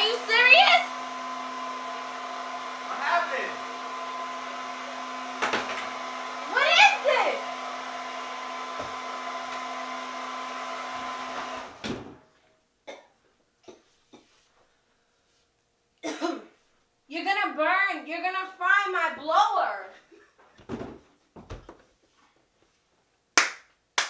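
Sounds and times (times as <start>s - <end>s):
hair dryer whirring: 0.0s - 12.1s
person speaking: 2.8s - 3.7s.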